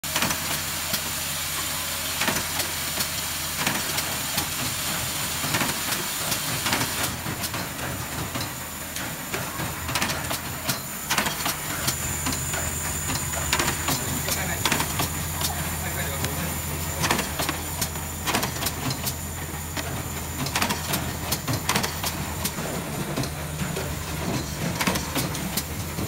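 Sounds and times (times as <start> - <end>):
machine hum and hiss: 0.0 - 26.0
press clacking: 6.6 - 26.0.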